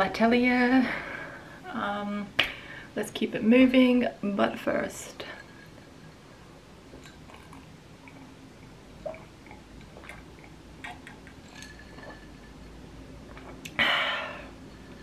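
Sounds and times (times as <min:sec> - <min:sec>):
person sipping and swallowing: 0:07.0 - 0:08.4, 0:09.0 - 0:12.5, 0:13.2 - 0:15.0.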